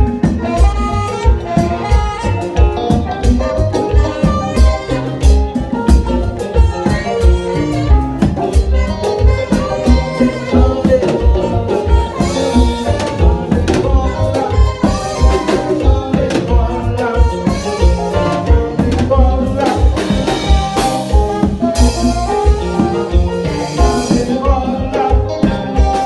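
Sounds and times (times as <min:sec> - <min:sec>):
live band dance music: 0:00.0 - 0:26.0.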